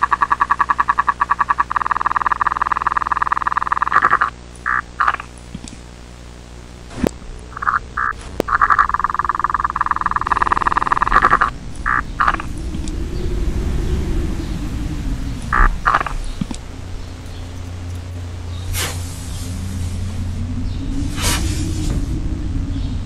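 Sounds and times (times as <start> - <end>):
sharp clicks: 0.0 - 5.8, 7.0 - 13.0
faint hum: 0.0 - 23.0
buzzy fluttering electronic tone: 6.3 - 23.0.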